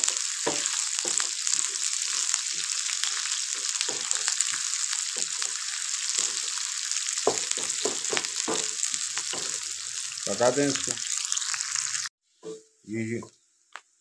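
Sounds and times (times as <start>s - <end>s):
spatula scraping pan: 0.0s - 6.5s
onions sizzling in frying pan: 0.0s - 12.1s.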